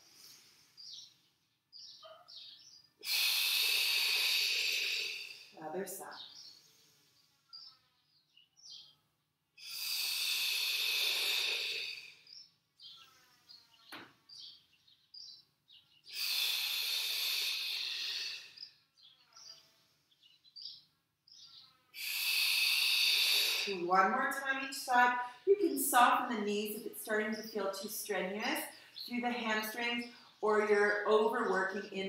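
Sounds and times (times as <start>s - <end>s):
person exhaling through mouth: 3.0s - 5.6s, 9.6s - 12.2s, 16.1s - 18.6s, 22.0s - 23.7s.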